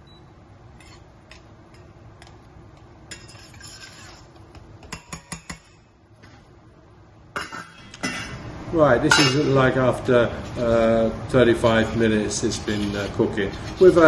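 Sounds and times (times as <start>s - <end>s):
spoon scraping saucepan: 3.1s - 4.4s.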